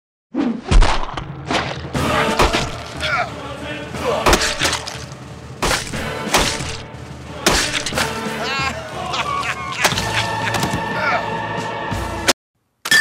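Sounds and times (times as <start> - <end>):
heavy crunching gore hits: 0.6 - 3.2, 4.2 - 6.9, 7.5 - 8.1
background music sustained tones: 1.1 - 12.3
warbling wail: 8.2 - 11.4.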